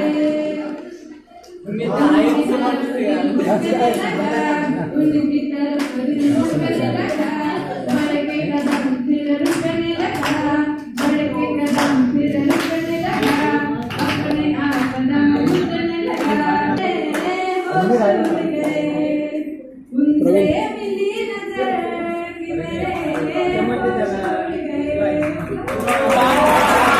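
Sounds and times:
woman singing into a microphone: 0:03.8 - 0:25.6
audience clapping in time: 0:07.9 - 0:17.3, 0:25.2 - 0:26.9.

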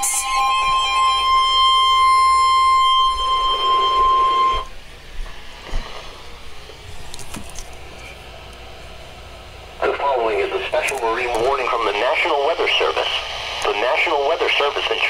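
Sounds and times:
weather radio alarm tone: 0:00.0 - 0:04.7, 0:09.8 - 0:15.0.

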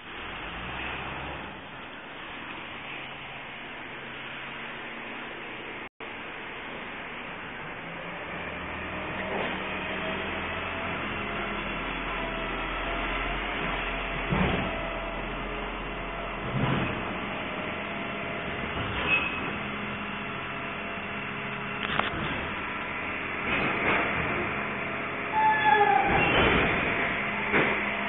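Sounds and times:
garbage truck engine drone: 0:00.0 - 0:28.0
sharp knocks and clanks: 0:13.6 - 0:14.8, 0:26.0 - 0:27.9.

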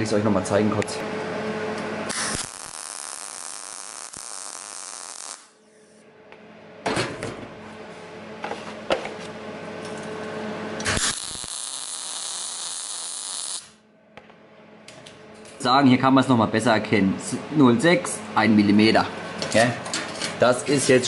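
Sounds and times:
welding arc crackling hiss: 0:02.1 - 0:05.6, 0:10.8 - 0:13.8.

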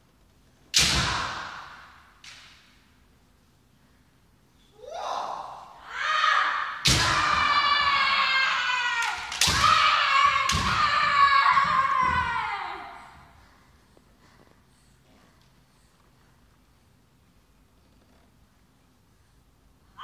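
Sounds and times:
bamboo sword strikes: 0:00.7 - 0:02.7, 0:06.8 - 0:07.4
fighters shouting: 0:04.8 - 0:13.1.

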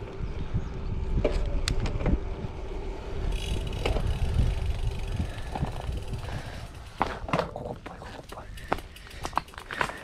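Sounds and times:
wind on microphone: 0:00.0 - 0:07.3
bike rolling over concrete: 0:00.0 - 0:10.0
bike rattling over bumps: 0:01.1 - 0:10.0
bike freehub ticking: 0:03.2 - 0:10.0.

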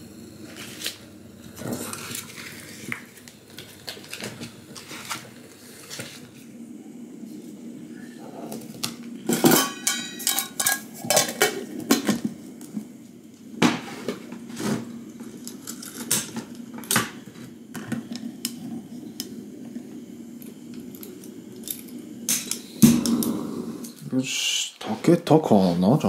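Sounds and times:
steady low hum: 0:00.0 - 0:26.0
metal cookware clattering: 0:09.3 - 0:12.1.

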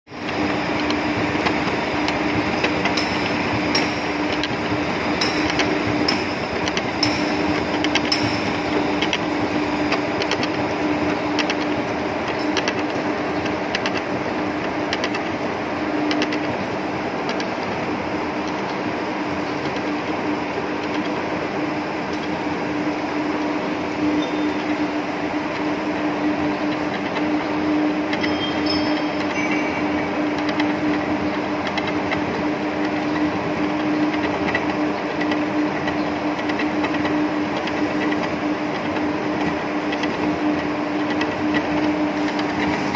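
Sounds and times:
metal lathe humming: 0:00.1 - 0:42.9
gears clicking rattle: 0:00.2 - 0:15.4, 0:16.0 - 0:17.8, 0:28.0 - 0:42.9.

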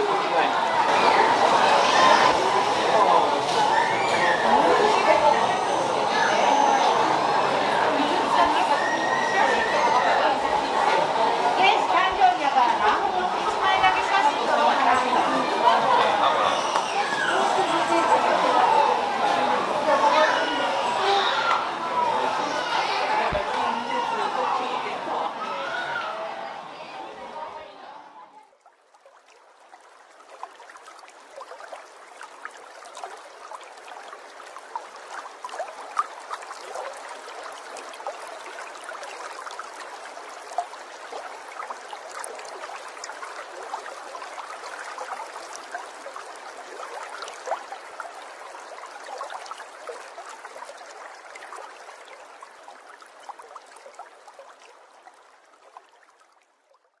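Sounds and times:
water bubbling and trickling: 0:28.5 - 0:57.0.

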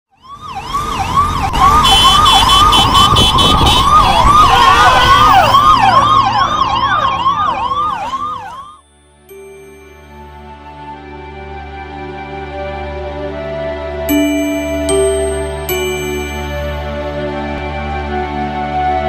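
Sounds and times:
second siren: 0:00.1 - 0:08.8
siren yelping: 0:00.2 - 0:08.8
low traffic rumble: 0:00.2 - 0:19.0
high steady tones: 0:08.7 - 0:10.6, 0:14.1 - 0:17.0.

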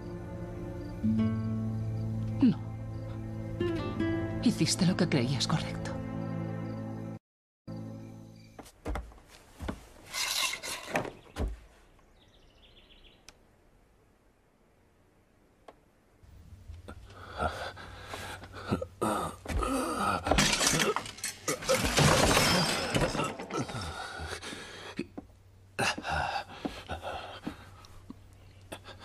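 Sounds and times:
something breaking: 0:20.2 - 0:24.0
crashes and clatters: 0:20.3 - 0:23.8.

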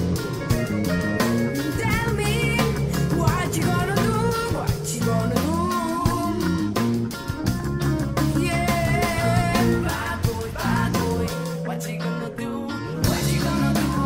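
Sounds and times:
song with guitar and drums: 0:00.0 - 0:14.0
person singing: 0:01.6 - 0:06.9, 0:08.2 - 0:14.0.

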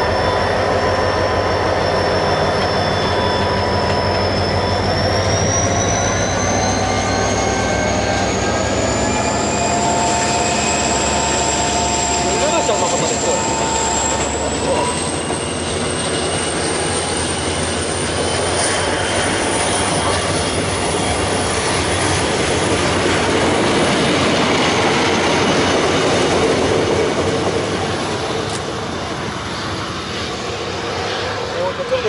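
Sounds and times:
thin high whine: 0:00.0 - 0:26.0
train wheels rumbling on rail: 0:00.0 - 0:32.0.

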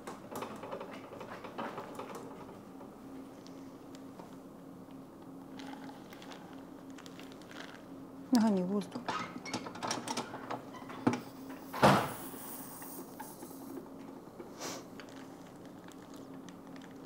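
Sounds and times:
short rush of air hissing: 0:12.0 - 0:13.6.

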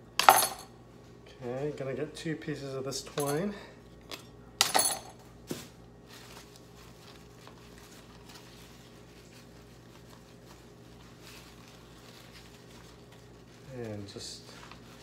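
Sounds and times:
low steady hum: 0:00.0 - 0:15.0
rustling of leaves being folded: 0:05.2 - 0:15.0.

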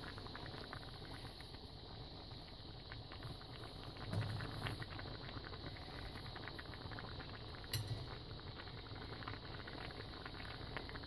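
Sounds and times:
stew simmering and bubbling: 0:00.0 - 0:11.0.

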